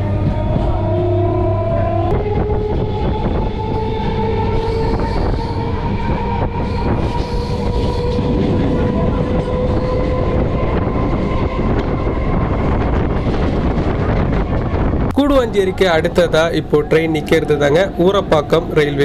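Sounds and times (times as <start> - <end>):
electric train whine: 0.0 - 19.0
train wheels rumbling on rail: 0.0 - 19.0.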